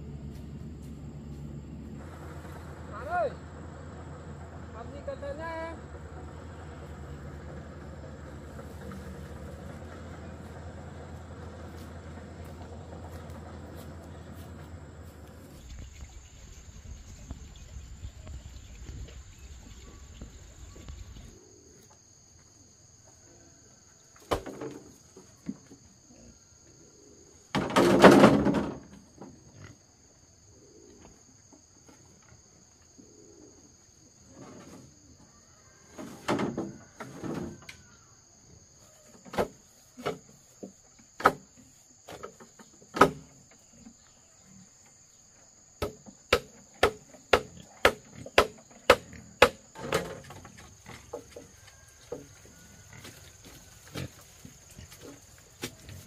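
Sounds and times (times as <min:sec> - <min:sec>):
insects chirring: 0:00.0 - 0:56.0
sharp knocks: 0:45.8 - 0:50.1.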